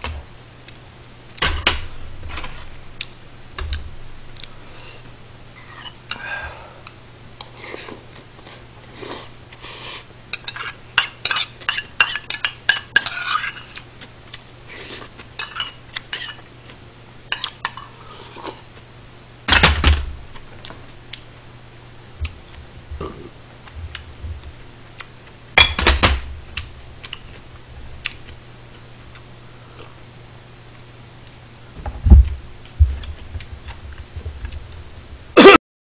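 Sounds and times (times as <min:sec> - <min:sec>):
metal spoon scraping steel bowl: 0:13.0 - 0:13.8.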